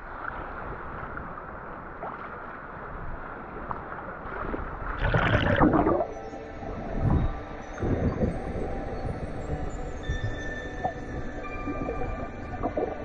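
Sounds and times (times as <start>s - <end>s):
water splash and gurgle: 0.0s - 6.2s, 10.2s - 13.0s
muffled water sloshing: 0.0s - 13.0s.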